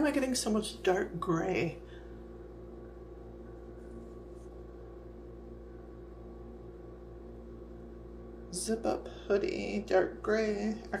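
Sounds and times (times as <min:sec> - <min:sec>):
faint regular pulsing: 0:00.0 - 0:11.0
low room hum: 0:00.0 - 0:11.0.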